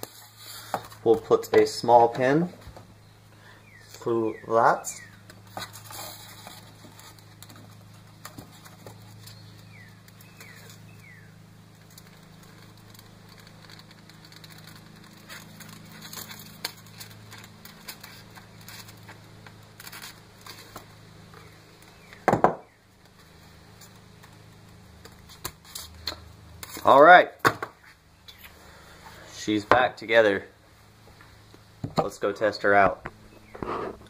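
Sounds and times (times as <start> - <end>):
steady low hum: 0.0 - 34.0
clicks and crackles of foam model: 11.7 - 22.3.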